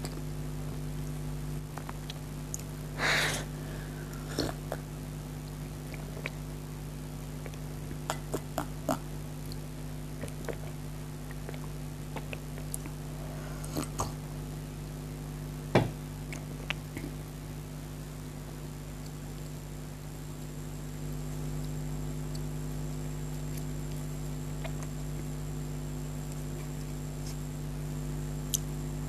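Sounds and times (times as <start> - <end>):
steady low hum: 0.0 - 29.0
mouth and swallowing clicks: 5.4 - 6.4, 7.4 - 13.0, 24.6 - 25.3
knock: 15.8 - 16.0.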